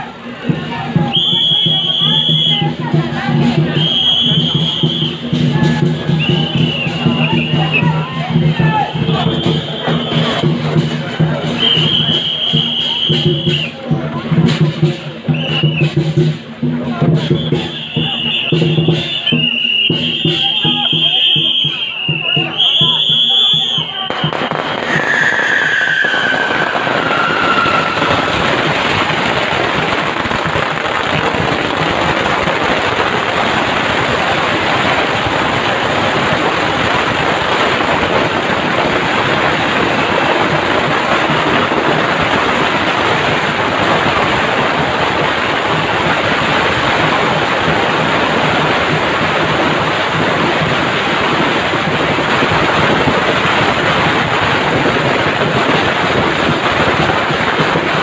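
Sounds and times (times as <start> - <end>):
firecrackers crackling: 0.0 - 58.0.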